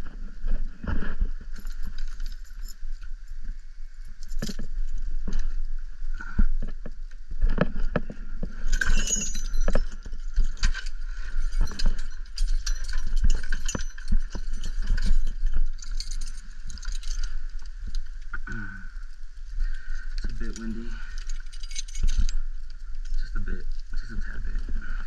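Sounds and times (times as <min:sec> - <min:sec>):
metal gear clinking and jingling: 0:01.5 - 0:03.1, 0:08.5 - 0:18.1, 0:19.6 - 0:24.6.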